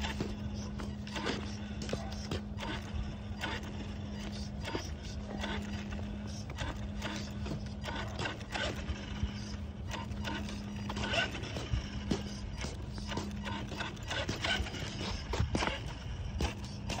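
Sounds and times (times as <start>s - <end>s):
toy truck motor whirring: 0.0s - 17.0s.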